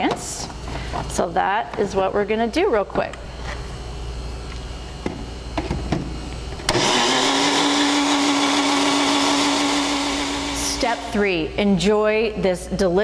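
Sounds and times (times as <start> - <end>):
blender motor whirring: 6.6 - 11.4.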